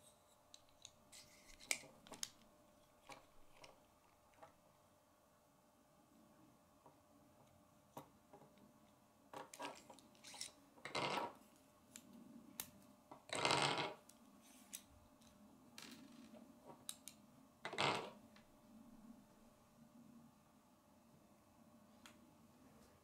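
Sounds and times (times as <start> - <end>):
plastic parts clicking and rattling: 0.5 - 2.4.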